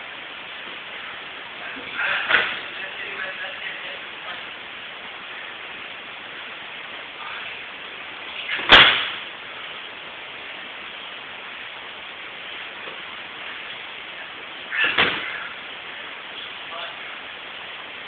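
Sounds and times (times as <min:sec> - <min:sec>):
bodies slapping onto mats: 0:02.2 - 0:02.7, 0:08.4 - 0:09.3, 0:14.8 - 0:15.5.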